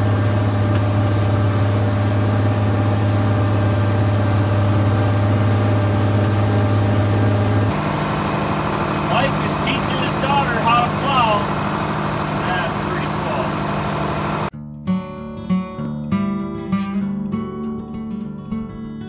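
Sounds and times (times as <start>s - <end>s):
tractor diesel engine drone: 0.0s - 14.5s.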